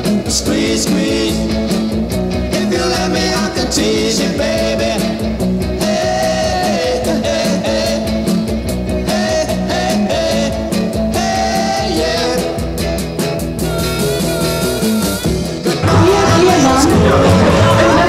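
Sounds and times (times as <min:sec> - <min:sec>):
person singing: 0:00.0 - 0:01.7, 0:02.4 - 0:05.2, 0:05.8 - 0:08.3, 0:09.0 - 0:12.8, 0:15.0 - 0:18.0
steady drum beat: 0:00.0 - 0:18.0.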